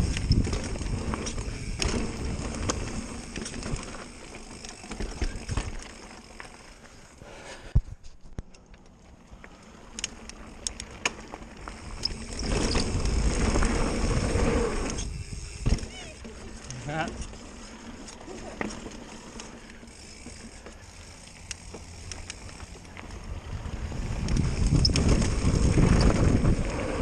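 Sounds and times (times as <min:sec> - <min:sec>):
wind rumbling on microphone: 0:00.0 - 0:03.9, 0:11.7 - 0:15.9, 0:23.1 - 0:27.0
bike rattling and clicking: 0:00.0 - 0:07.2, 0:07.8 - 0:27.0.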